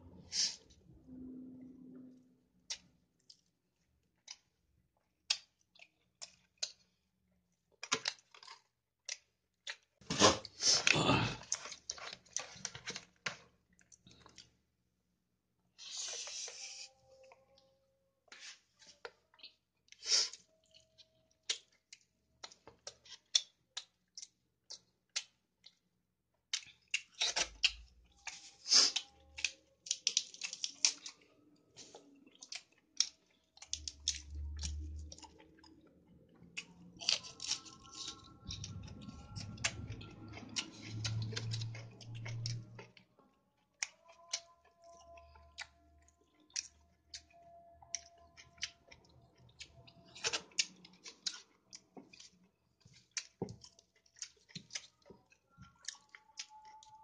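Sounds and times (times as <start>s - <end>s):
low hum: 0.0s - 2.5s
person chewing food: 0.0s - 14.7s, 15.7s - 57.0s.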